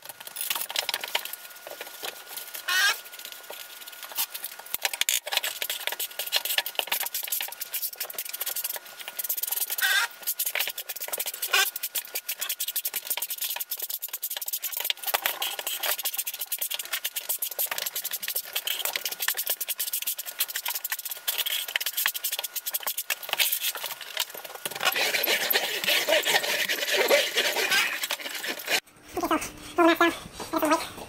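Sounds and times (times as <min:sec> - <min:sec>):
steel trowel scraping mortar: 0:05.4 - 0:28.8.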